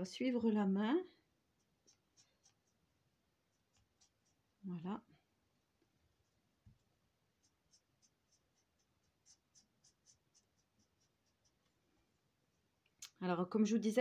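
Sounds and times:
marker strokes on paper: 0:01.5 - 0:04.6, 0:05.9 - 0:11.8.

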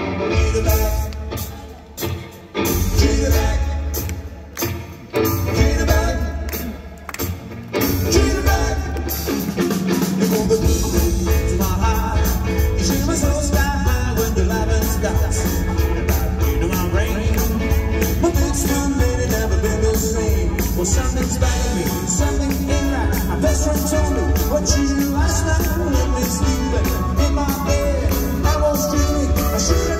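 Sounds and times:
swing band playing: 0:00.0 - 0:29.9
person singing: 0:07.8 - 0:29.9.

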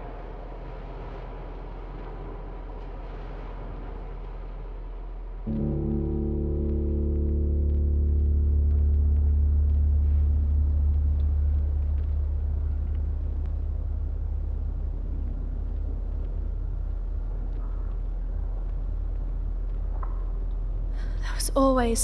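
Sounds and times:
deep low rumble: 0:00.0 - 0:22.0
gong-like chord ringing: 0:05.5 - 0:09.1.

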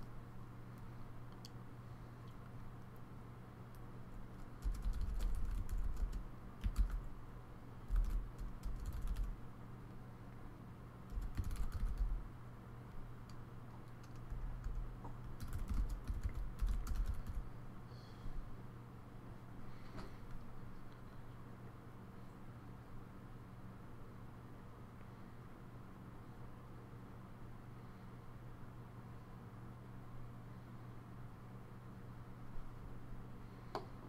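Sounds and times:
low steady hum: 0:00.0 - 0:34.0
computer keyboard typing: 0:04.3 - 0:07.1, 0:07.8 - 0:09.4, 0:11.1 - 0:12.2, 0:13.2 - 0:17.4.

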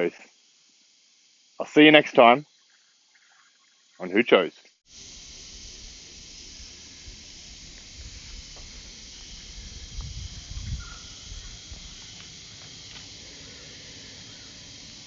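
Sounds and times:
steady high hiss: 0:00.0 - 0:15.0
wind rumble on microphone: 0:07.0 - 0:12.2.

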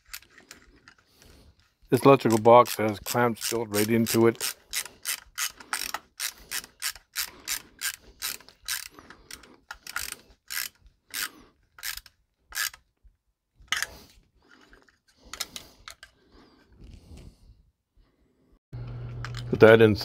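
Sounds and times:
ratcheting screwdriver clicking: 0:02.2 - 0:12.8.

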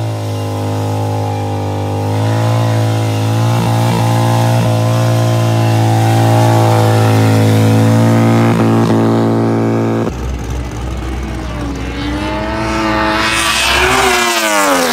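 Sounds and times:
motorcycle engine at high revs: 0:00.0 - 0:14.9.

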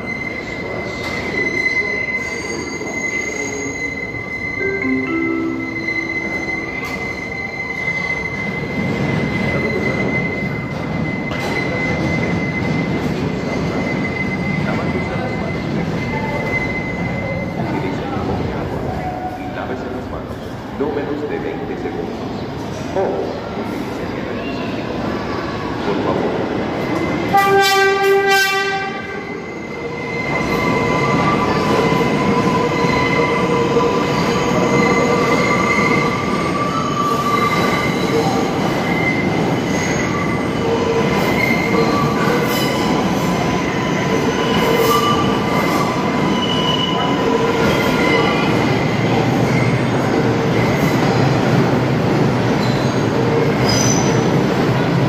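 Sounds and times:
wheels squealing against rail: 0:00.0 - 0:19.7, 0:23.2 - 0:51.8, 0:52.4 - 0:54.9
train wheels rumbling on rails: 0:06.2 - 0:55.0
train horn blast: 0:27.3 - 0:29.3.

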